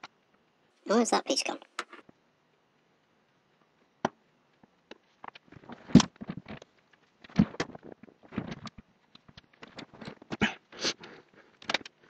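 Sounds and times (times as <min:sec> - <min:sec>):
small parts clicking and rustling: 0:11.0 - 0:12.0.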